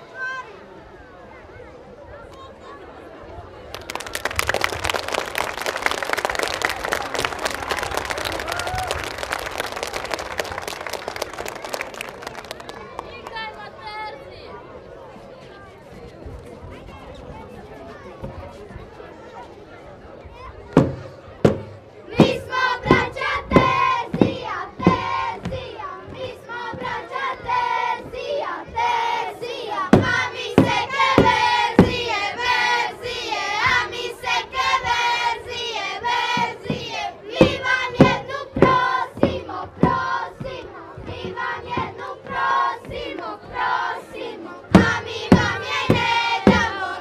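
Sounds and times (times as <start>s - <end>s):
children singing in unison: 22.1s - 47.0s.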